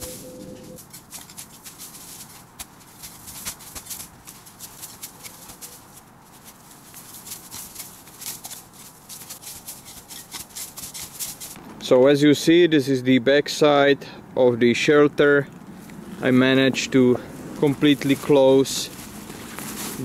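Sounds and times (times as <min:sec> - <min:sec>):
shovel scraping through snow: 0:00.0 - 0:11.6, 0:18.0 - 0:20.0.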